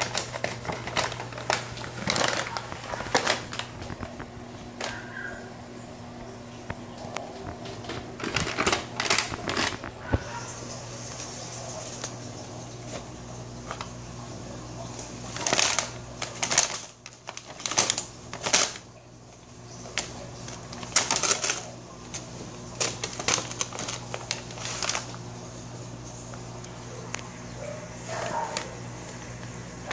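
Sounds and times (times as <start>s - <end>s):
paper bag rustling: 0.0s - 5.4s, 7.0s - 18.9s, 19.7s - 25.6s, 27.6s - 29.9s.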